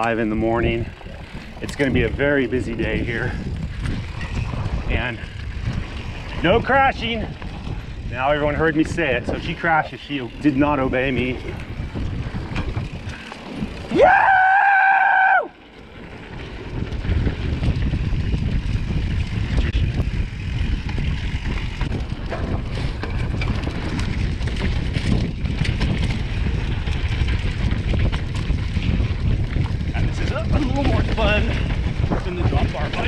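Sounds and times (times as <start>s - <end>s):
bike tyres rolling on dirt: 0.0s - 33.0s
wind rushing over microphone: 0.0s - 33.0s
person yelling: 13.9s - 15.5s.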